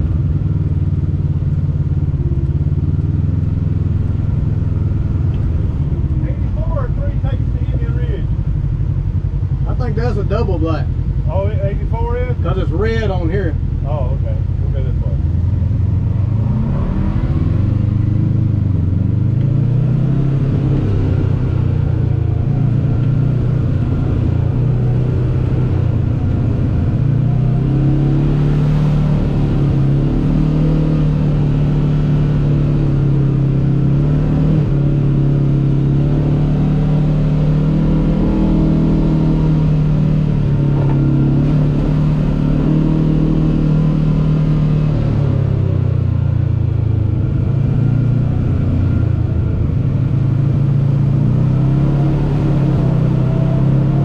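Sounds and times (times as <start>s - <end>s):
engine under throttle: 14.2s - 54.0s.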